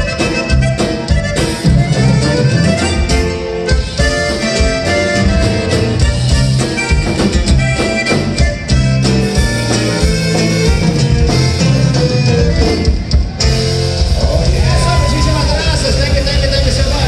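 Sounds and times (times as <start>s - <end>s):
button accordion: 0.0s - 13.8s
drum kit beat: 0.0s - 17.0s
strummed guitar: 0.0s - 17.0s.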